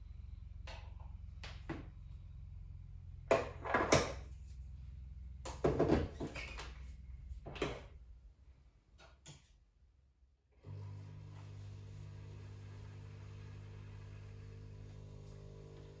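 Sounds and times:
low steady hum: 0.0 - 9.0.

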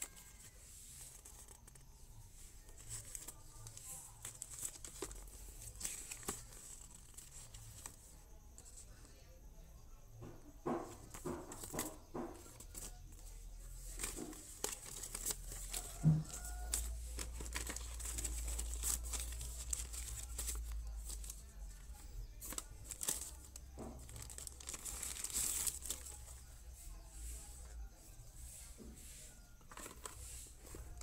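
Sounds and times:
paper and plastic packaging rustling: 0.0 - 9.2, 10.2 - 31.0.

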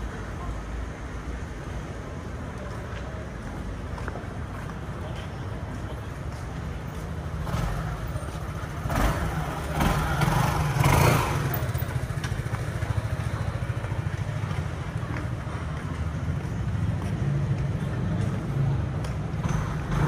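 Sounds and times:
low traffic rumble: 0.0 - 20.0
motorbike passing: 4.8 - 20.0.

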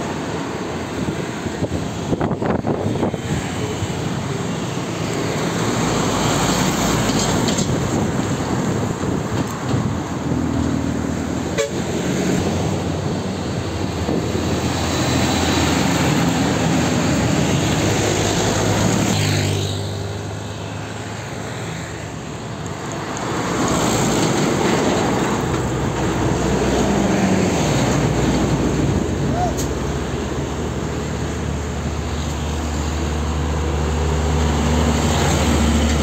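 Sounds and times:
heavy diesel trucks passing: 0.0 - 36.0
tyre and traffic noise: 0.0 - 36.0.

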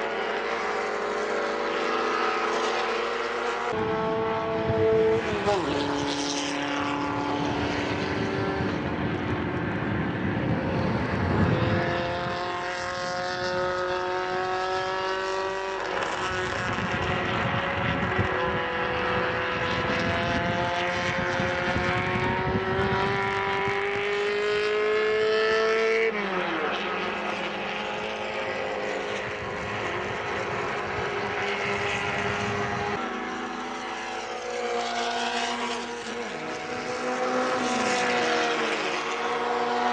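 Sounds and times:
race car engines at full throttle: 0.0 - 39.9.

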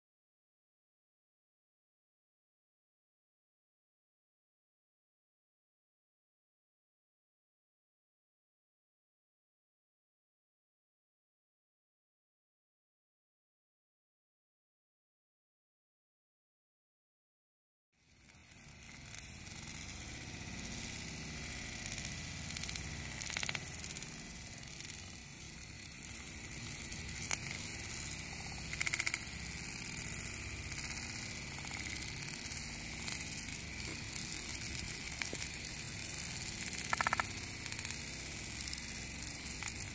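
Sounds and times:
bonfire roaring and hissing: 18.0 - 39.9
burning wood crackling pops: 18.1 - 39.9.

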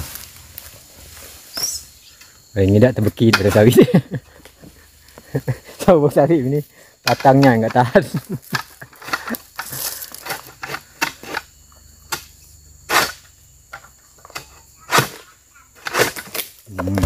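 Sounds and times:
sickle cutting strokes: 14.9 - 17.0.

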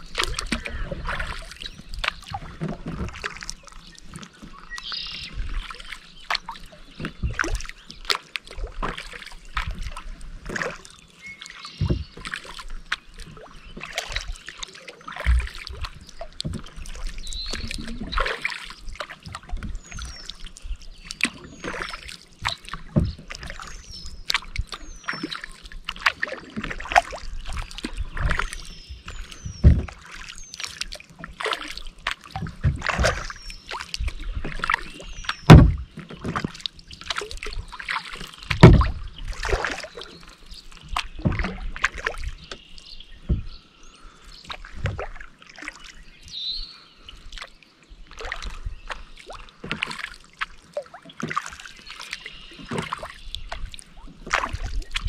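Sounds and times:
paddle splashing in water: 0.0 - 55.0
thumps against kayak hull: 7.0 - 7.7, 11.8 - 12.5, 15.2 - 18.3, 22.5 - 23.7, 29.2 - 30.4, 31.4 - 36.7, 38.5 - 39.8, 40.8 - 42.6, 43.2 - 43.6.

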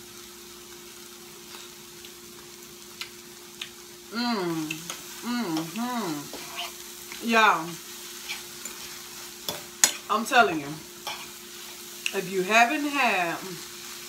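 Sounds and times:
food sizzling in a frying pan: 0.0 - 14.0
woman humming mmm: 4.0 - 6.8.

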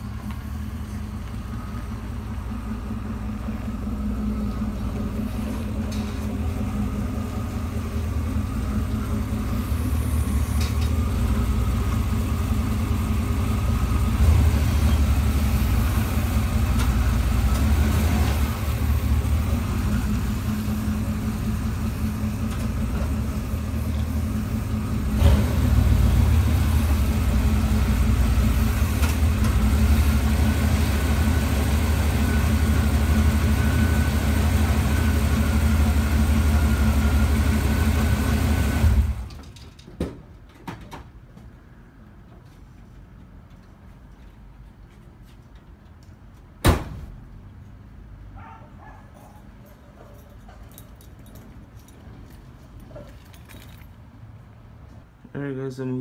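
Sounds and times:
pickup truck engine idling: 0.0 - 39.2
sharp knock: 46.6 - 47.1.

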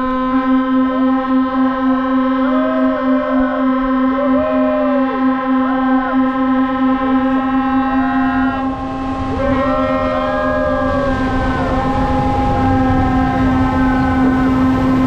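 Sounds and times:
ship horns blasting: 0.0 - 15.0
siren tones rising and falling: 0.0 - 15.0
water rushing and splashing: 8.6 - 15.0.

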